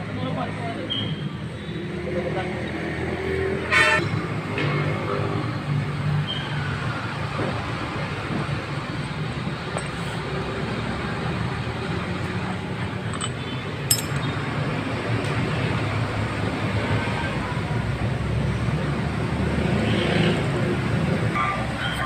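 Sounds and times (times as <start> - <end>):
low rumble of traffic: 0.0 - 22.0
sharp metallic clink: 13.1 - 14.5.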